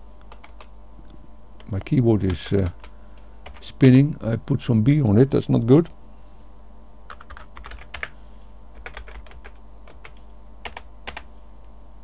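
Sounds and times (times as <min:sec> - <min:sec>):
typing on computer keyboard: 0:00.3 - 0:00.7, 0:07.1 - 0:08.1, 0:08.8 - 0:11.3.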